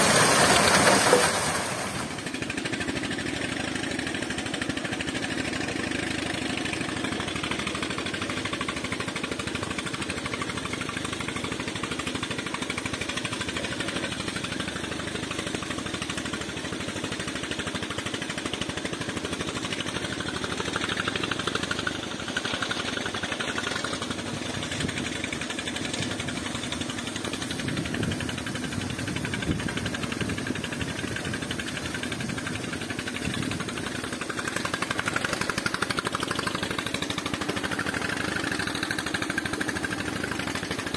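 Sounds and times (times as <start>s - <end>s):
slurry pouring into truck bed: 0.0s - 2.4s
engine running steadily: 0.0s - 40.9s.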